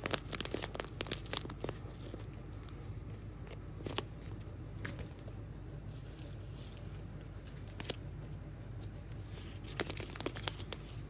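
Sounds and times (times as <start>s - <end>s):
plastic bag crinkling and tearing: 0.0s - 2.4s, 9.3s - 11.0s.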